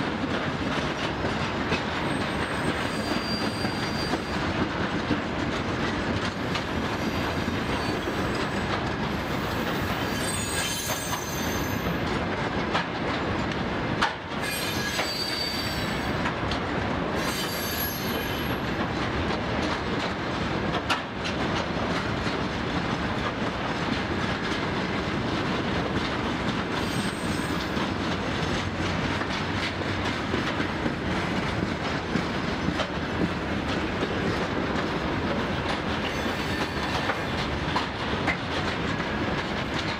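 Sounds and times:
train wheels rumbling and clattering: 0.0s - 39.9s
high-pitched wheel squeals: 2.1s - 4.4s, 7.0s - 8.6s, 9.6s - 12.0s, 14.4s - 16.1s, 17.2s - 18.6s, 26.8s - 27.7s, 36.1s - 37.2s.

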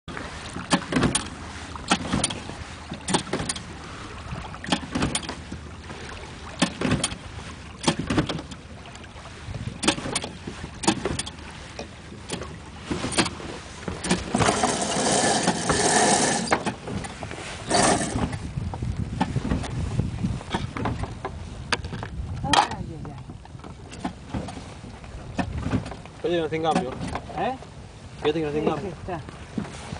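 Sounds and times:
outboard motor pull-start rasps: 0.5s - 3.8s, 12.2s - 18.5s.

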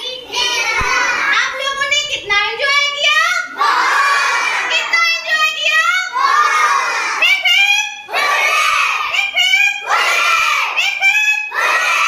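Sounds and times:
young children shouting: 0.0s - 1.6s, 3.4s - 7.3s, 8.0s - 9.1s, 9.8s - 12.0s.

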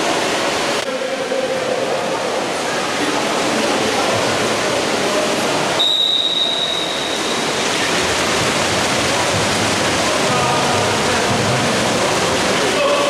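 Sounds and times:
crowd noise: 0.0s - 13.0s
water splashing: 0.0s - 13.0s
long referee's whistle blast: 5.8s - 7.4s.

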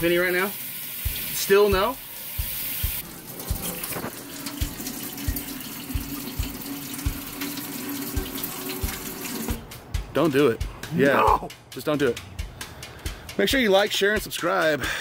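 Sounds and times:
faucet running into sink: 0.0s - 9.6s
water splashing: 0.4s - 9.6s.

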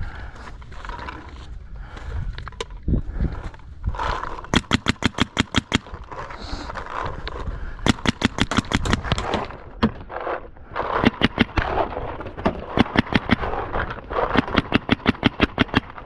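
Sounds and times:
paintball marker rapid firing: 4.0s - 6.0s, 7.8s - 10.0s, 10.8s - 16.0s.

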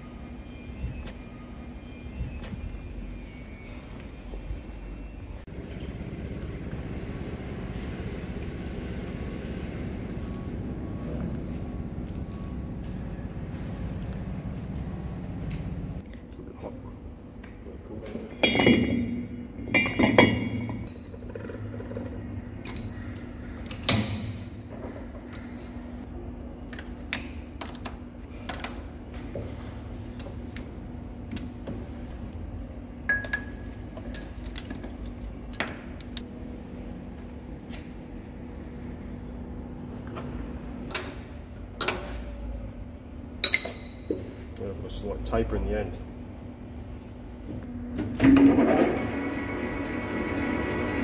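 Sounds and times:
steady low hum: 0.0s - 51.0s
steel tools clanking: 33.1s - 36.2s.

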